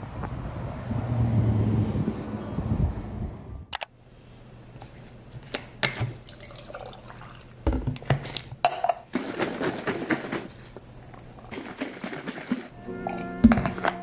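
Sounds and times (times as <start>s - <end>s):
liquid pouring into glass: 6.3s - 7.5s.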